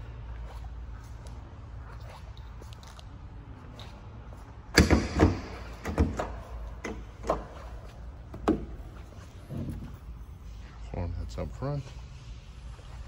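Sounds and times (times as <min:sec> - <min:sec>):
knocks and clicks of handling: 0:04.8 - 0:07.6.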